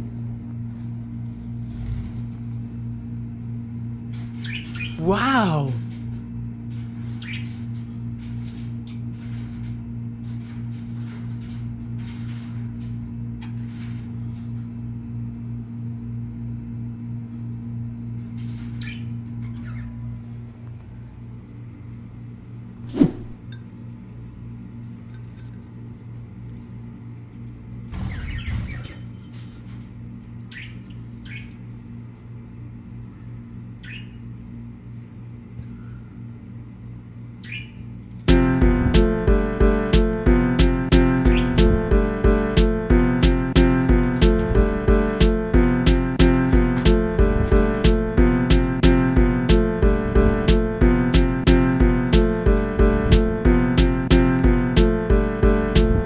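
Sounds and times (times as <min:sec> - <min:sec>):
steady low hum: 0:00.0 - 0:56.0
rustling and scraping: 0:00.6 - 0:03.0
budgerigars chirping: 0:27.6 - 0:29.2, 0:30.3 - 0:33.0, 0:33.8 - 0:34.2, 0:36.6 - 0:38.0, 0:41.3 - 0:41.6.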